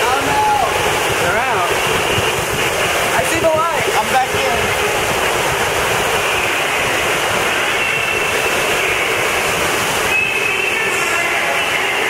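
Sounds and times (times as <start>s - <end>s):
water rushing and splashing: 0.0s - 12.0s
thin high tone: 10.0s - 12.0s.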